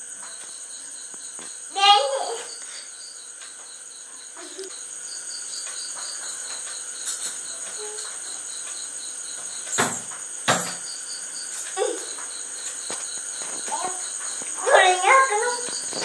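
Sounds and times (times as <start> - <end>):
insects chirping: 0.0 - 16.0
sharp knocks: 9.7 - 10.9.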